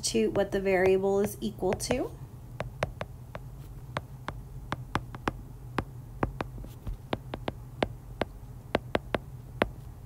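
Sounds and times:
steady low hum: 0.0 - 10.0
stylus tapping on glass screen: 2.6 - 9.8.

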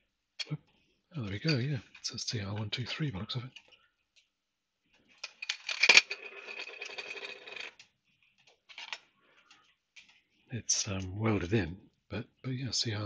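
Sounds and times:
plastic parts clicking and rattling: 4.9 - 10.2.

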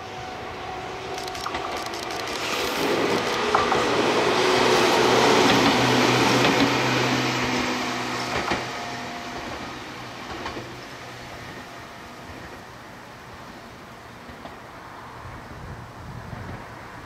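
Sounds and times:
train wheels on rails: 0.0 - 15.4
sharp rail clacks: 1.1 - 4.0.

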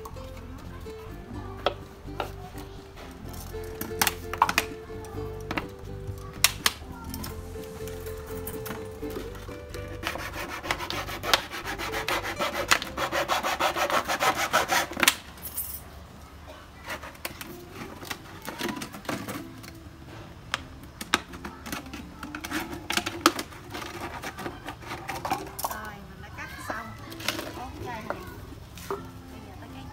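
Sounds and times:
scissors cutting plastic bottle: 9.7 - 13.2.

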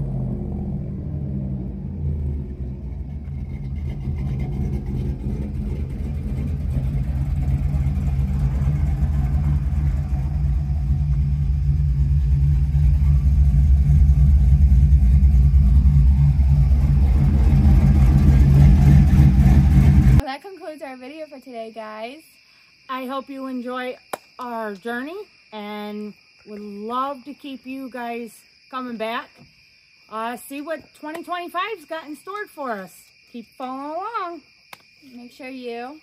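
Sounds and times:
pickup truck engine idling: 0.0 - 20.2.

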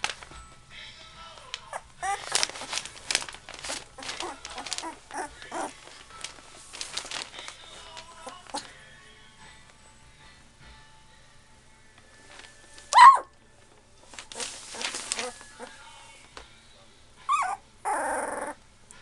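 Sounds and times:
bedding crinkling and rustling: 0.0 - 0.5, 1.2 - 8.9, 12.2 - 13.0, 13.6 - 16.5
puppies squeaking and whimpering: 1.7 - 2.6, 3.6 - 5.8, 17.2 - 18.6.

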